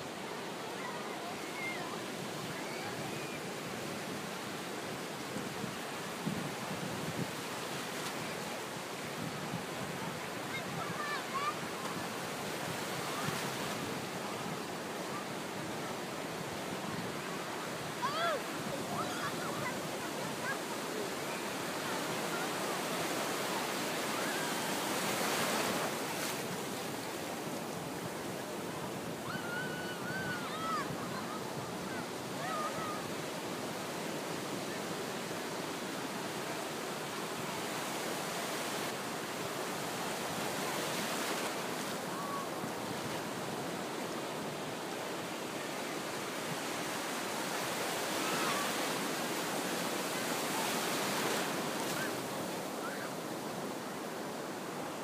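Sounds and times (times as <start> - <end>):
ocean waves breaking: 0.0 - 54.8.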